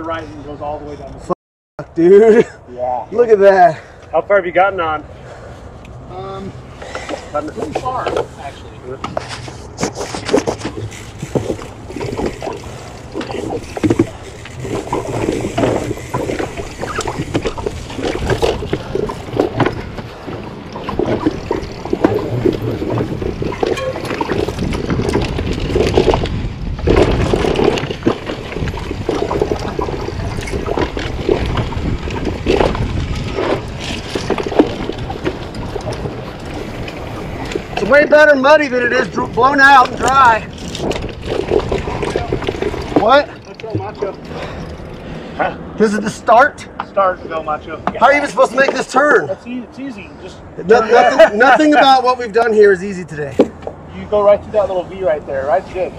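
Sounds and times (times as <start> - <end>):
bike rattling: 6.2 - 55.9
bike tyres rolling over rock: 9.1 - 44.9.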